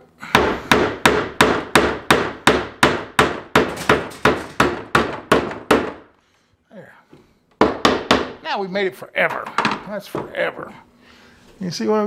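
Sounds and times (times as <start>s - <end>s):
hammer driving a nail into wood: 0.2s - 6.1s, 7.6s - 8.4s.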